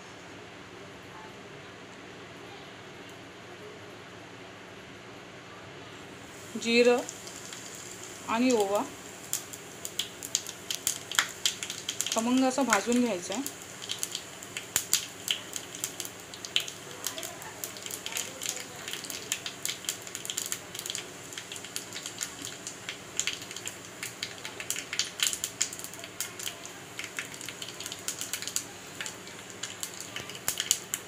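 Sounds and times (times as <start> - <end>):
seeds crackling in hot oil: 6.2 - 31.0.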